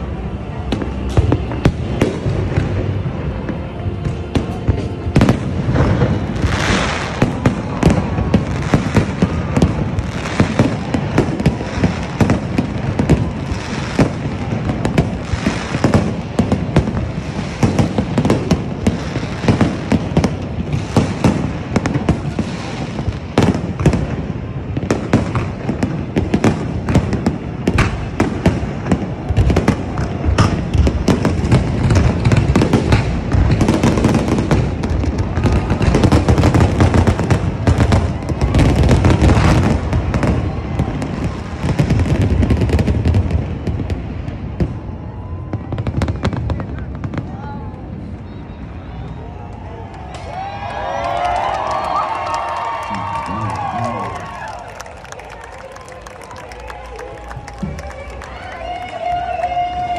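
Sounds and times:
fireworks crackle: 0:00.0 - 0:59.9.

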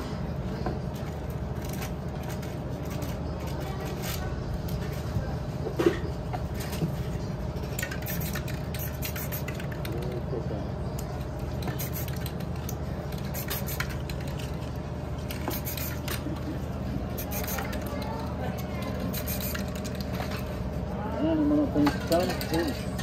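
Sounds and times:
steady low hum: 0:00.0 - 0:23.0
spray can hissing: 0:08.0 - 0:09.6, 0:11.7 - 0:12.3, 0:13.2 - 0:14.0, 0:15.4 - 0:16.0, 0:17.2 - 0:17.8, 0:19.1 - 0:19.7.

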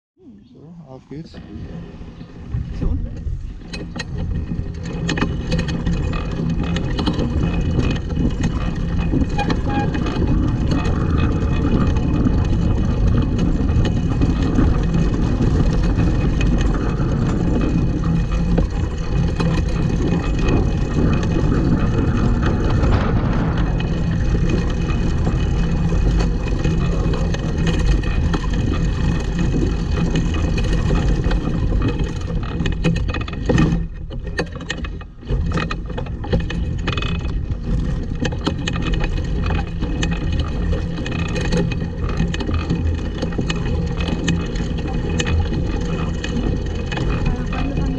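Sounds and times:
go-kart wheels rattling on grass: 0:01.4 - 0:47.9.

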